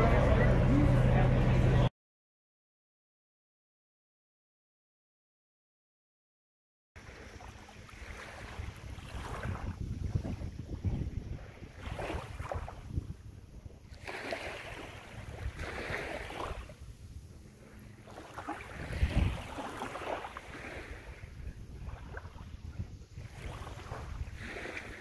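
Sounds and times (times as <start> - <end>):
small waves washing on sand: 7.0 - 25.0
wind rumbling on microphone: 7.0 - 25.0.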